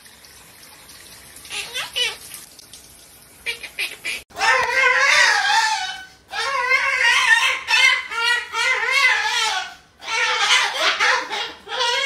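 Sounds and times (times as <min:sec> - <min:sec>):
animal high-pitched cries: 0:03.4 - 0:12.0.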